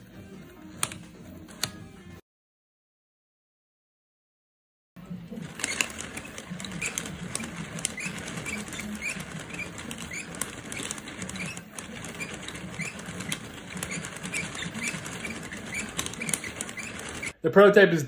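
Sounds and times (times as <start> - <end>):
chain and gears clattering: 5.4 - 17.4.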